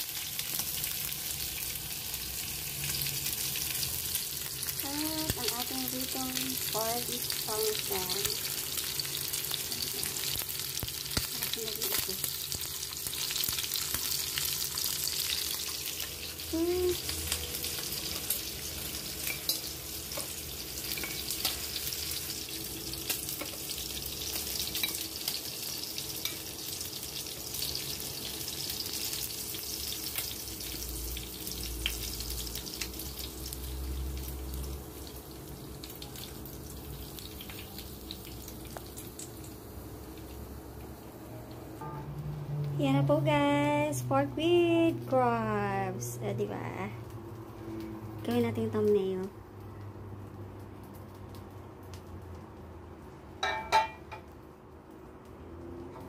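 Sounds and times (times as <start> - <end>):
meat sizzling in a frying pan: 0.0 - 41.6.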